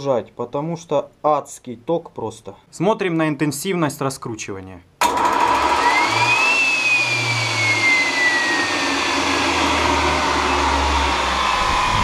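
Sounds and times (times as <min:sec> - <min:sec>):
turbine whine winding down: 0:05.2 - 0:12.0
rush of air: 0:11.3 - 0:12.0.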